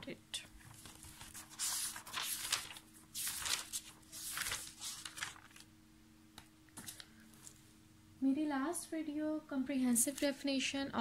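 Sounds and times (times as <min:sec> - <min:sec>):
faint steady hum: 0:00.0 - 0:11.0
book pages turning: 0:00.6 - 0:05.7.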